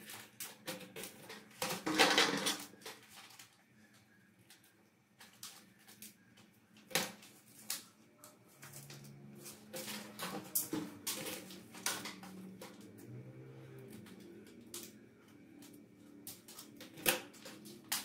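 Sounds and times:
plastic bag crinkling: 0.0s - 4.0s
scissors snipping plastic: 14.0s - 18.0s.

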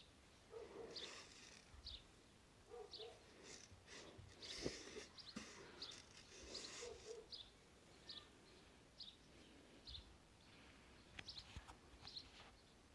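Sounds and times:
faint small bird chirps: 2.9s - 12.8s.

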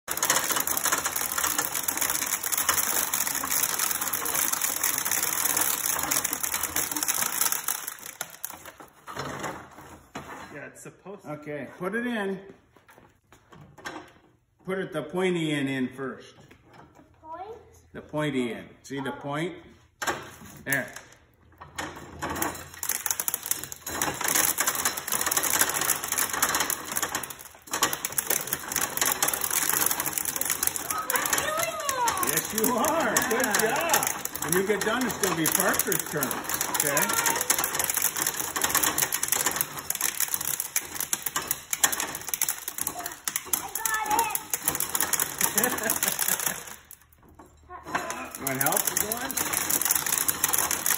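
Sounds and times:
corn sheller clicking rattle: 0.0s - 9.6s, 20.7s - 50.9s.

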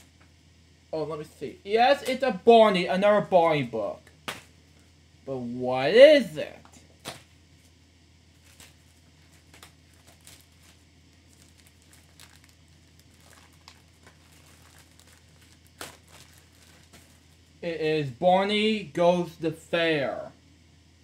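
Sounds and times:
packaging rustling: 8.4s - 17.6s.

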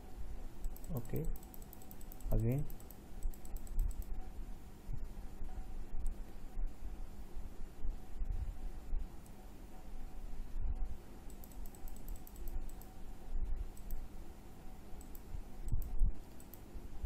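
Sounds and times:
faint steady hum: 0.0s - 17.0s
computer mouse clicking: 0.6s - 4.2s, 11.2s - 13.0s, 13.7s - 14.0s, 15.0s - 16.7s.

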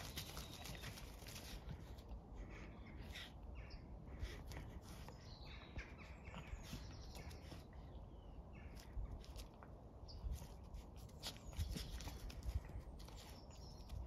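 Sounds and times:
scuffling and rustling in leaves: 0.0s - 2.0s.

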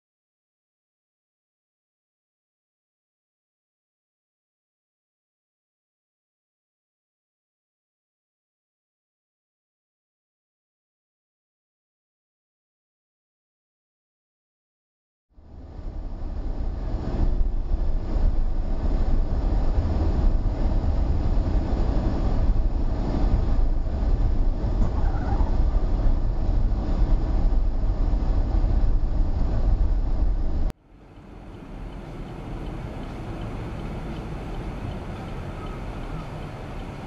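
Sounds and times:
car engine and tyre rumble: 15.4s - 37.0s
road noise: 15.4s - 37.0s.

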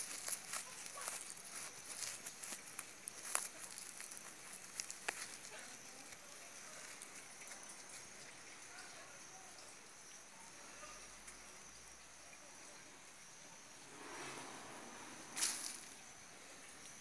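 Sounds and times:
sharp crackles: 13.8s - 16.0s
hand digging in loose soil: 13.9s - 16.0s.

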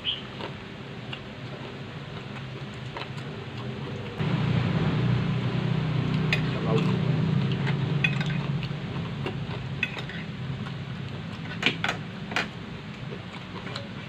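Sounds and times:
steady low hum: 0.0s - 14.0s
cutlery clinking on glass and plates: 8.0s - 8.4s.

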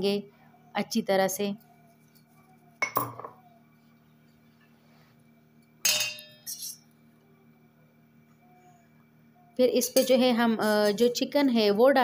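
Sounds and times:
utensils clinking against dishes: 2.1s - 3.4s, 5.8s - 6.6s, 9.8s - 11.2s.

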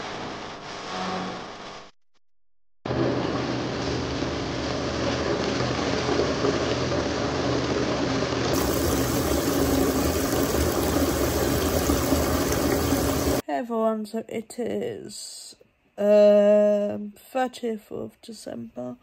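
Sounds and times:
water running into a bath: 4.7s - 13.4s.

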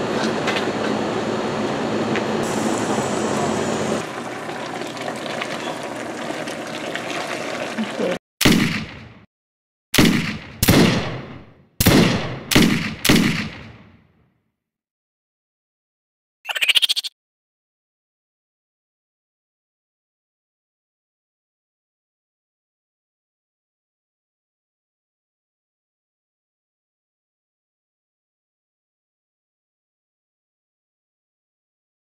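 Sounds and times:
gunshots: 8.4s - 9.2s, 10.0s - 14.0s.

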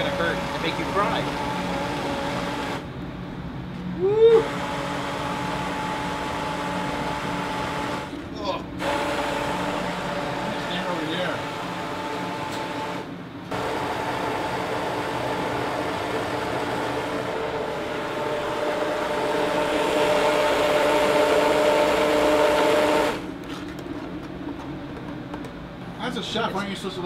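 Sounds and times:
stick blender motor running: 0.0s - 2.8s, 4.4s - 8.1s, 8.8s - 23.3s.

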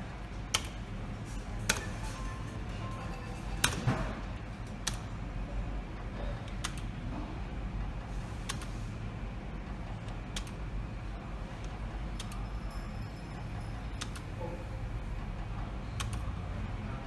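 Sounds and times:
steady low hum: 0.0s - 17.0s
slot machine clicking: 1.5s - 3.9s.

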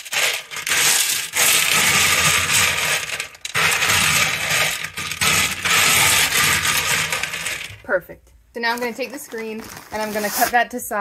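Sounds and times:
clay pebbles rattling in glass tank: 0.0s - 7.9s.

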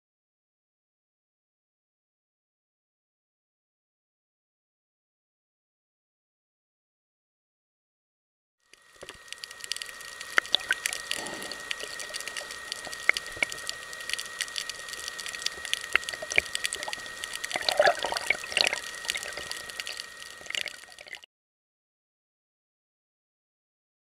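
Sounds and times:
faint high whine: 8.6s - 21.3s
underwater hiss with clicks: 8.7s - 21.2s
water splashing: 9.3s - 21.2s.

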